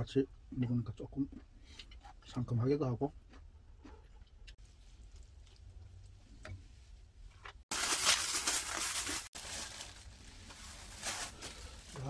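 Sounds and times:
plastic food pack crackling: 7.7 - 12.0
plastic rustling: 7.7 - 12.0.

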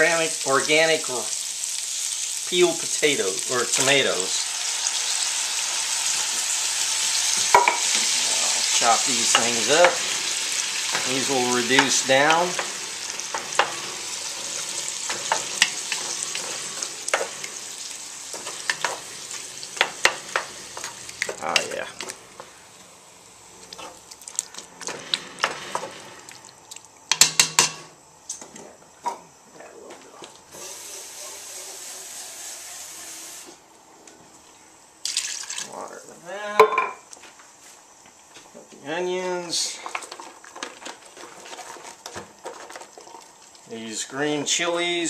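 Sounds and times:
meat sizzling in lard: 0.0 - 27.9, 30.4 - 33.7, 35.0 - 36.6, 38.8 - 45.0
metal utensil scraping pot: 7.4 - 17.7, 18.3 - 21.6.

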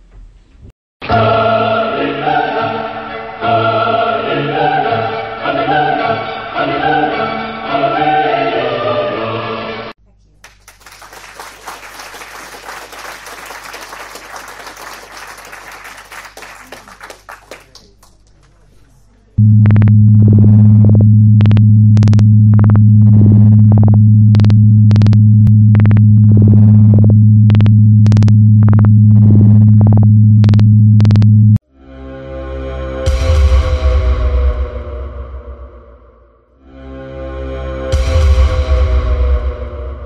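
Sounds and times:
people clapping: 10.4 - 19.1.

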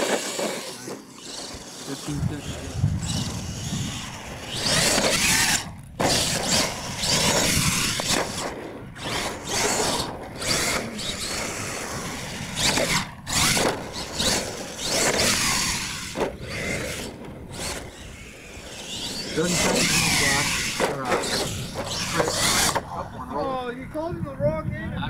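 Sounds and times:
tyres on loose dirt: 0.0 - 23.1
electric motor whining: 0.0 - 23.2.

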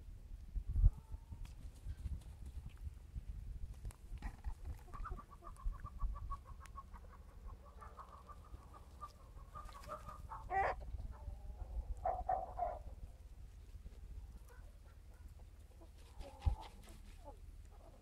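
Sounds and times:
chickens clucking: 4.2 - 18.0
chicken calling loudly: 4.9 - 13.0.

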